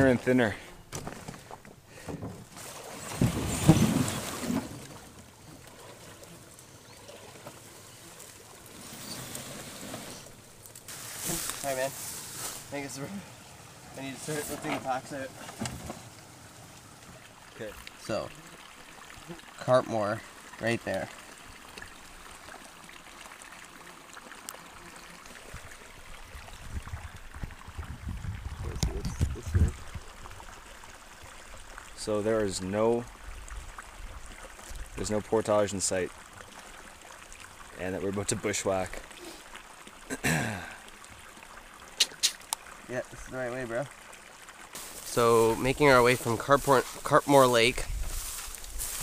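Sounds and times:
branches scraping against canoe: 0:00.0 - 0:17.2, 0:44.8 - 0:49.0
stream flowing: 0:00.0 - 0:49.0
water trickling: 0:00.0 - 0:49.0.

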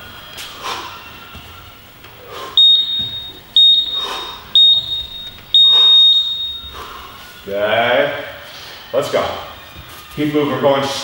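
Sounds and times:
interval timer beeping: 0:02.6 - 0:06.8.

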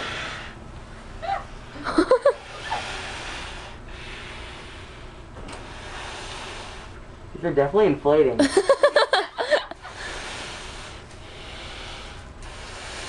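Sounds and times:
airy blowing hiss: 0:00.0 - 0:00.6, 0:02.3 - 0:07.1, 0:09.4 - 0:13.0.

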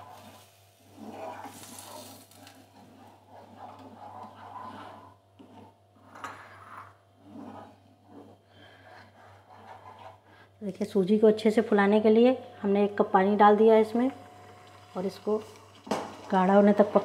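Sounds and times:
soft sizzle: 0:00.0 - 0:08.3, 0:12.8 - 0:17.0
spatula scraping a pan: 0:00.0 - 0:10.5.

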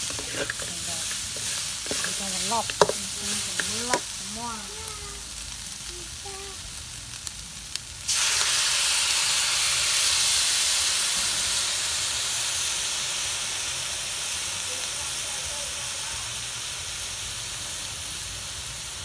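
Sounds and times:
food sizzling in wok: 0:00.0 - 0:19.0.

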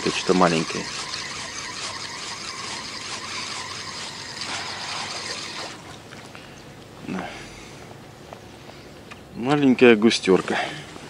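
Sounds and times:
fishing reel cranking: 0:00.0 - 0:05.8.

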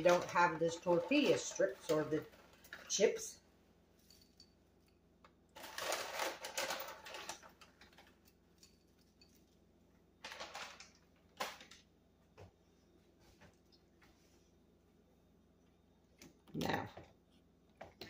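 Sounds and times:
plastic snack bag crinkling: 0:00.0 - 0:03.1, 0:05.5 - 0:08.4, 0:10.2 - 0:11.8
crisp strips rustling: 0:05.6 - 0:09.5.

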